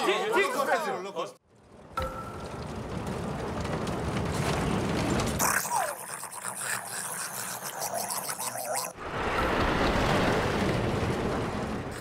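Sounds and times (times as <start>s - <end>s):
roller coaster chain lift rattling: 1.5s - 5.6s.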